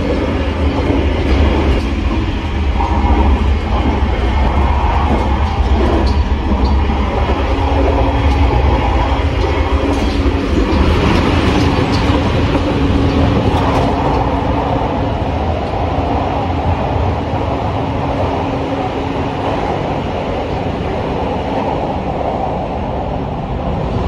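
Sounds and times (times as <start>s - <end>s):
faint rail clicks: 0.0s - 14.8s
train low rumble: 0.0s - 24.0s.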